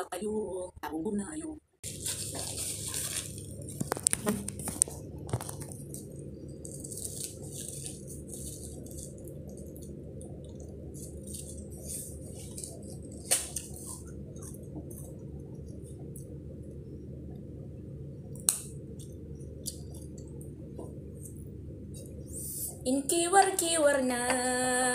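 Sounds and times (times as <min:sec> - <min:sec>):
steady low hum: 0:00.0 - 0:24.9
soft rustles and hisses: 0:01.8 - 0:05.9, 0:11.0 - 0:15.2.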